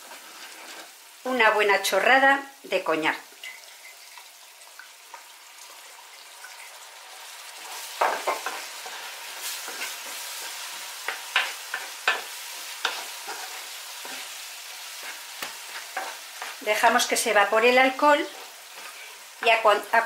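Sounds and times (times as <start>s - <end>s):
wooden spoon scraping pan: 0.0s - 1.0s, 7.7s - 17.3s, 17.9s - 19.6s
vegetables sizzling in frying pan: 0.0s - 20.0s.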